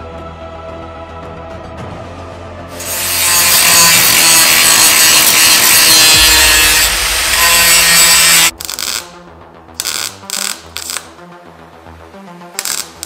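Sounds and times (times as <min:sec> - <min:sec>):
background music: 0:00.0 - 0:13.0
power tool rasping: 0:02.8 - 0:09.1.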